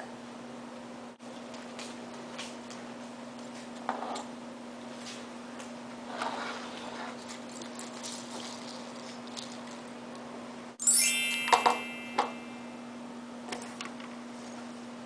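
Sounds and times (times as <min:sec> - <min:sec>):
sparkling chime sound effect: 0:10.8 - 0:12.8.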